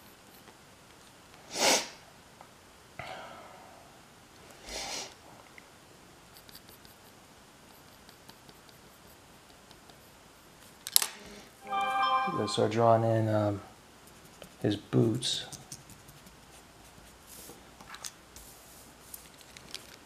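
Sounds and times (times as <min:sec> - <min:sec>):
pencil scratching on paper: 0:07.7 - 0:10.6, 0:14.0 - 0:14.7.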